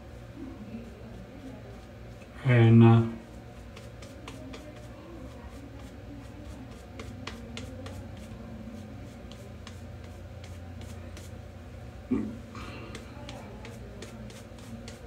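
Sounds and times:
steady low hum: 0.0s - 15.0s
shaving brush lathering: 3.6s - 8.4s, 12.9s - 15.0s.

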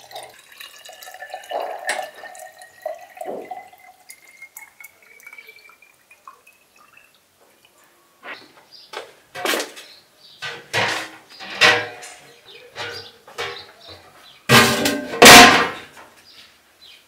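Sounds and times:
metal pot clanking on stovetop: 10.4s - 12.2s.

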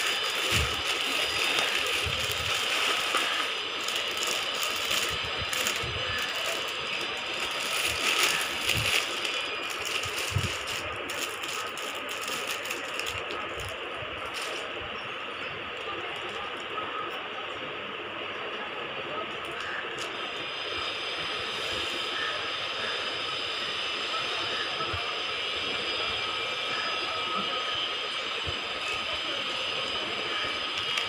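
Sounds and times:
plastic packaging crinkling: 0.0s - 14.8s.

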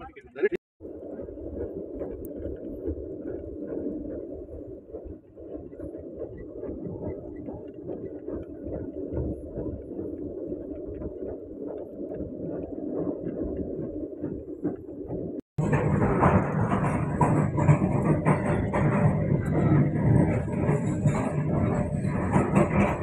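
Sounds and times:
train coach rumble: 15.6s - 23.0s.

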